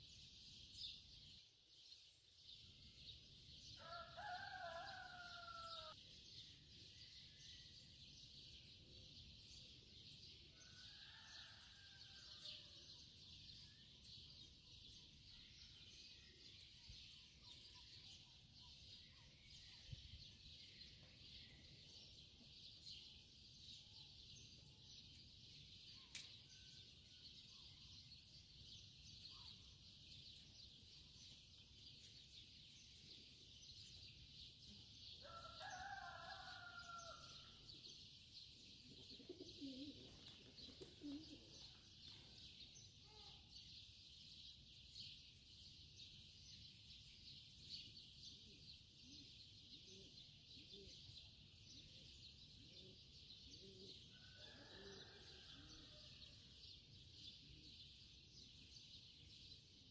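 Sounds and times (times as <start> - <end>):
rooster crowing faintly: 3.8 - 6.0, 35.2 - 37.6, 54.1 - 56.2.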